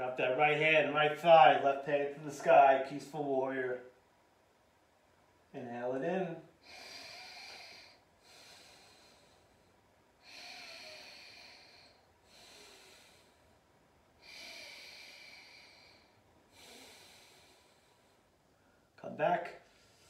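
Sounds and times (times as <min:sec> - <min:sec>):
slow deep breathing: 0:06.6 - 0:19.0, 0:19.6 - 0:20.0.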